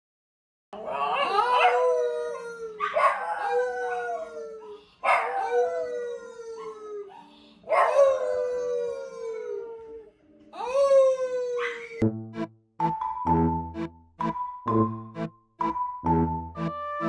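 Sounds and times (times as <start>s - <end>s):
man howling: 0.8s - 7.1s, 7.7s - 12.0s
small dog howling: 0.8s - 12.0s.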